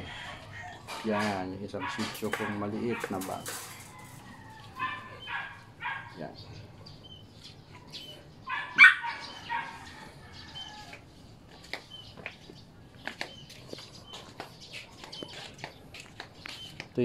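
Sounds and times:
small dog barking: 1.2 - 3.3, 4.8 - 6.2, 8.5 - 9.8.

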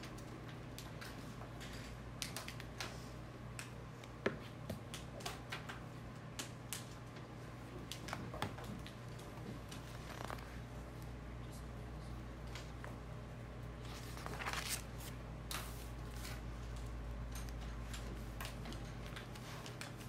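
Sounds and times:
low hum of room equipment: 0.0 - 20.0.

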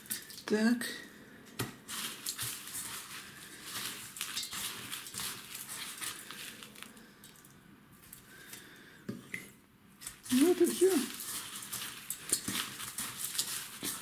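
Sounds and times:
coarse salt crunching and rustling: 1.8 - 8.8, 10.0 - 14.0.

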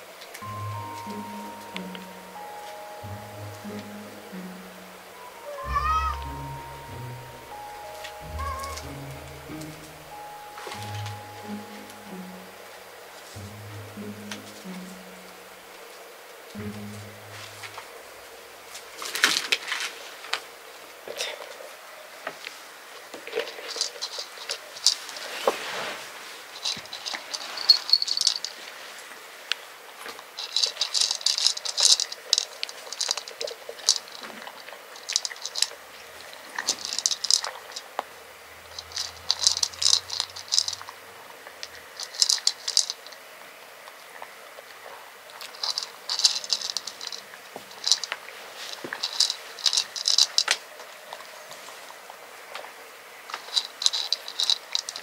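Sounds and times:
cat crunching dry kibble: 30.4 - 35.8, 38.7 - 40.9, 41.5 - 43.1.

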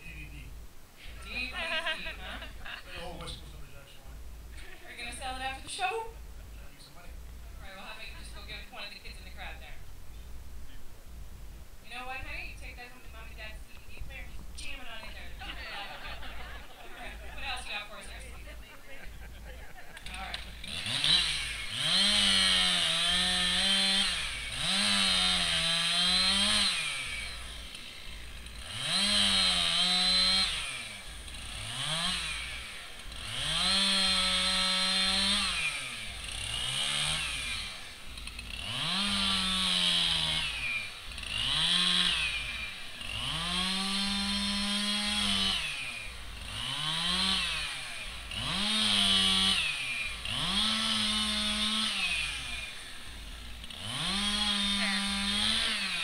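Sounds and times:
chainsaw revving: 20.0 - 56.0.

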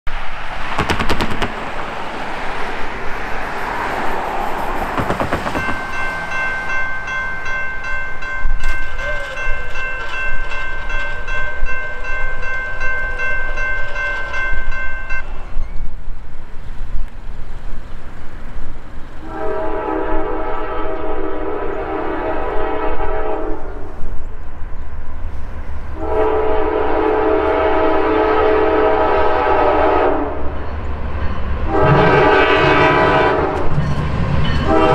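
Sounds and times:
rush of noise: 0.1 - 7.0
crossing bell ringing: 3.1 - 15.8, 30.6 - 31.8, 33.6 - 34.9
locomotive horn blasts: 19.2 - 24.0, 26.0 - 30.5, 31.6 - 33.8, 34.6 - 34.9.

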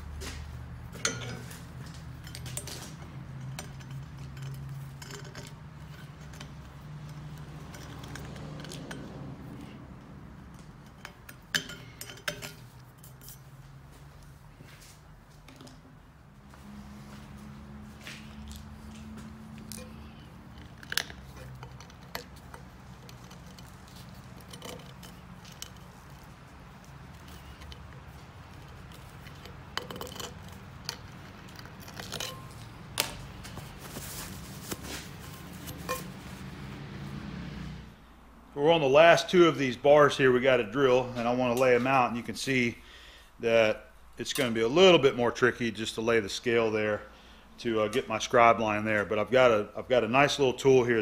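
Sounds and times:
deburring tool scraping metal: 1.0 - 9.8, 19.5 - 32.8, 33.5 - 36.3.

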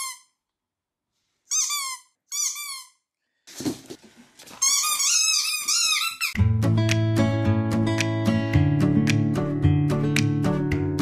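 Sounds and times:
squeaky dog toy squeaking: 0.0 - 0.4, 1.5 - 3.1, 4.6 - 6.4.

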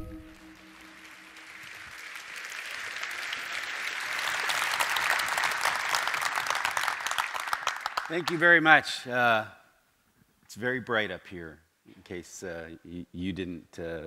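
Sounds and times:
intro music tone: 0.0 - 1.8
audience applause: 0.0 - 8.7.

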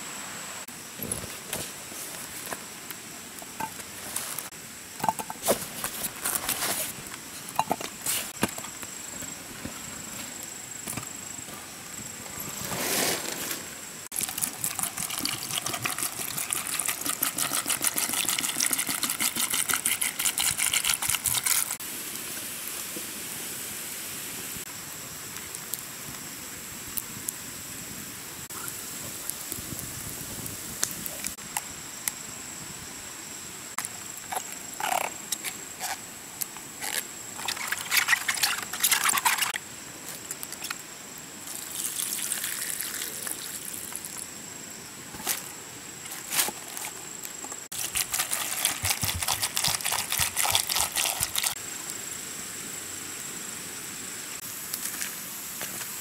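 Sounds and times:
water splashing onto dry leaves: 41.5 - 44.2, 47.7 - 51.6.

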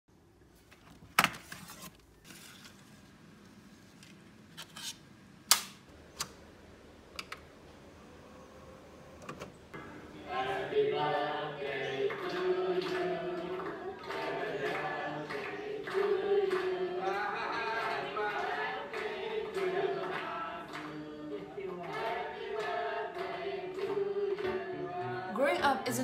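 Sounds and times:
group of voices: 9.7 - 26.0.

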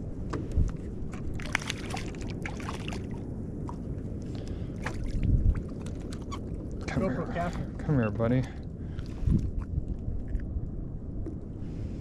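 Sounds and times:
steady low rumble: 0.0 - 12.0
fish splashing in water: 1.3 - 3.8.

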